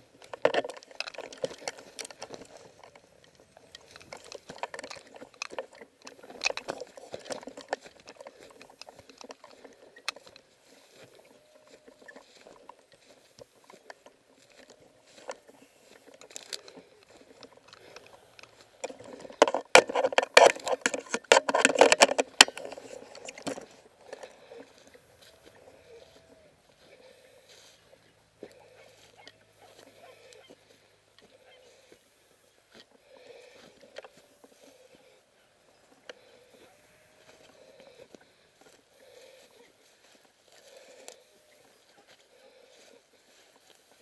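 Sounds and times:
camera handling rustling: 0.0s - 31.5s.

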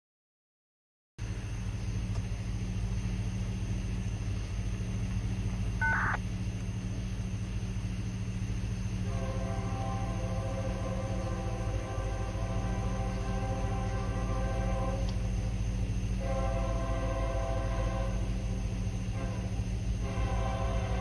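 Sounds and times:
diesel locomotive rumbling: 1.2s - 21.0s
train horn: 9.0s - 21.0s.

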